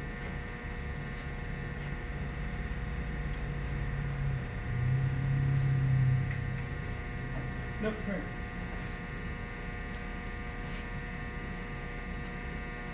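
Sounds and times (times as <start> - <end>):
machine hum: 0.0 - 12.9
low drone: 2.7 - 7.5.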